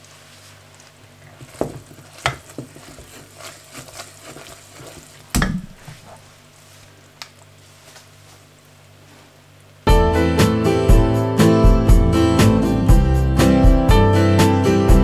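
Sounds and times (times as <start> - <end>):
syrup bubbling and crackling: 0.0 - 6.0
wooden spatula knocking on pot: 1.4 - 6.0.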